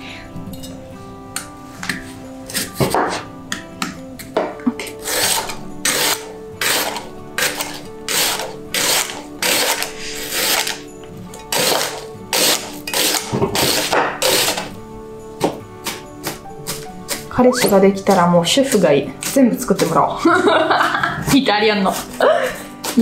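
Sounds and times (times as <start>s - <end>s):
background music: 0.0s - 23.0s
knife cutting onion on board: 1.4s - 10.9s, 11.5s - 14.7s, 15.4s - 18.3s, 21.9s - 23.0s.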